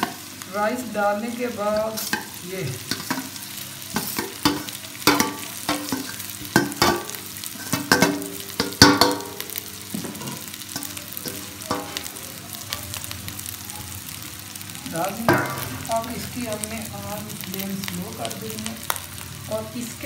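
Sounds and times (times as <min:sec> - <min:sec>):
food sizzling in pan: 0:00.0 - 0:20.0
metal plate clinking on pot: 0:03.9 - 0:09.4.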